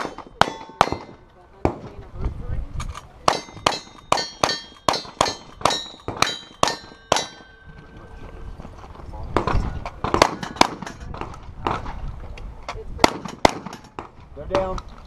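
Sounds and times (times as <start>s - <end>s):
steel target clanging: 0.0s - 1.3s, 3.3s - 7.8s
gunshots: 9.4s - 11.9s, 13.0s - 14.1s.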